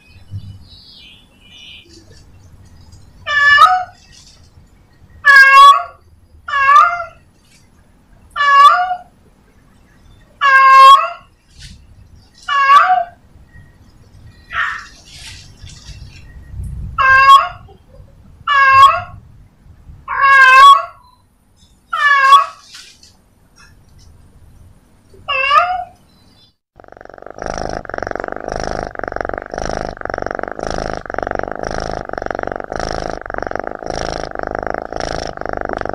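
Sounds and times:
cat meowing: 25.3s - 26.0s.

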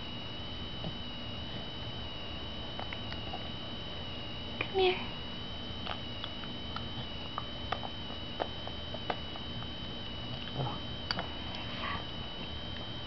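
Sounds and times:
high-pitched whine: 0.0s - 13.0s
baby eating with lip smacks: 5.8s - 9.7s, 10.3s - 11.7s.

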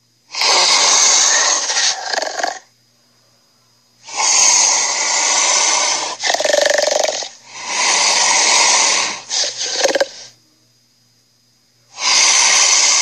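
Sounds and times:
cartoon dinosaur roars: 0.4s - 2.6s.

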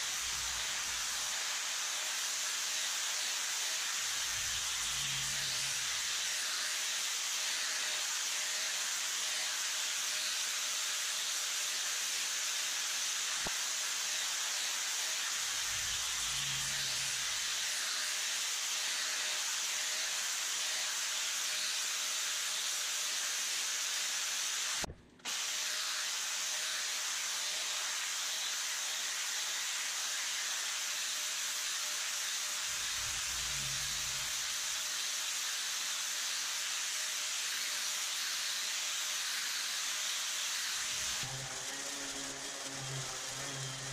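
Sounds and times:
angle grinder grinding metal: 0.0s - 24.0s, 25.5s - 43.9s.

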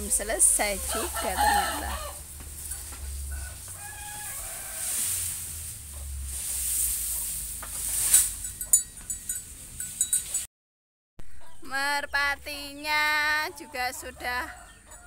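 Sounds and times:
cut grass rustling: 0.0s - 10.5s
fowl calls: 0.1s - 7.3s.

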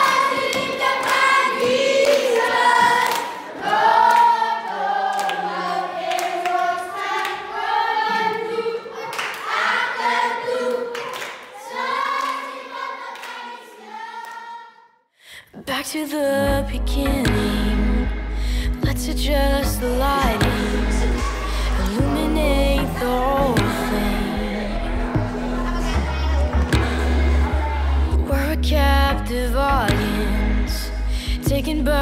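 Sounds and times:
hand claps: 0.0s - 3.4s, 5.1s - 5.4s, 11.0s - 11.5s
children singing: 0.0s - 14.9s, 19.4s - 29.0s.

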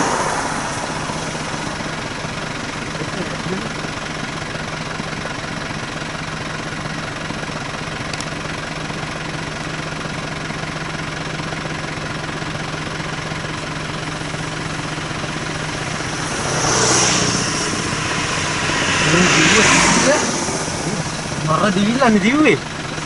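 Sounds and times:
loud rushing sound: 0.0s - 2.4s, 14.8s - 22.0s
vehicle engine idling: 0.0s - 23.0s.

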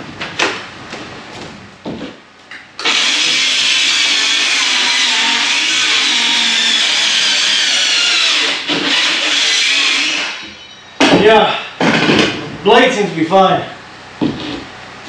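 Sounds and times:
cordless power saw cutting board: 2.8s - 10.6s.

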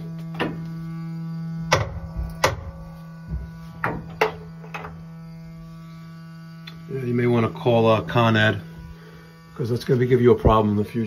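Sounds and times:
gas regulator humming: 0.0s - 11.0s
sharp knocks: 1.7s - 4.9s.

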